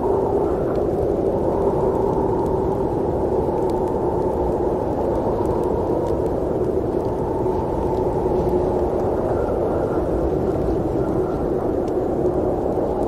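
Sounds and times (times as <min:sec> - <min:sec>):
muffled rushing wind: 0:00.0 - 0:13.0.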